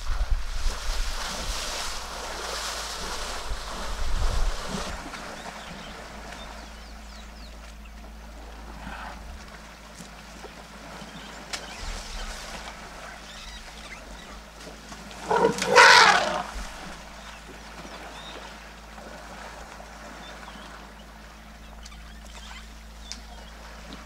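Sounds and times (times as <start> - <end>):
water sloshing: 7.5 - 24.0
elephant trumpeting: 15.2 - 16.9.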